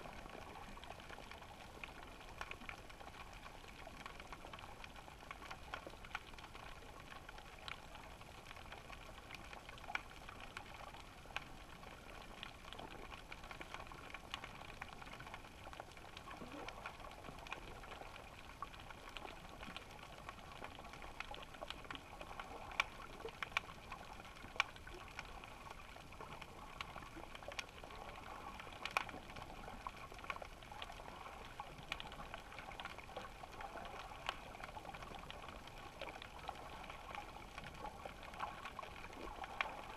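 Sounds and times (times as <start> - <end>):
sharp clicks and crackles: 0.0 - 39.9.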